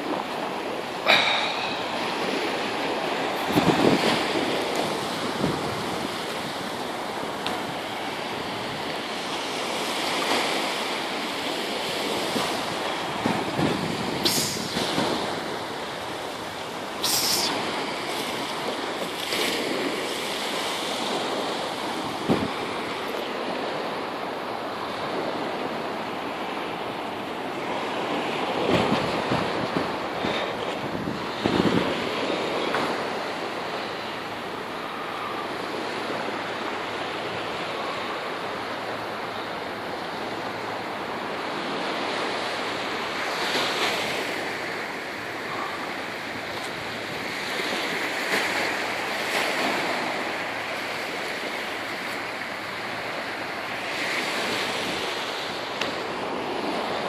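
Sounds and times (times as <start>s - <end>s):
surf washing onto beach: 0.0s - 57.0s
wind on microphone: 1.0s - 10.7s, 11.5s - 23.8s, 28.0s - 33.7s.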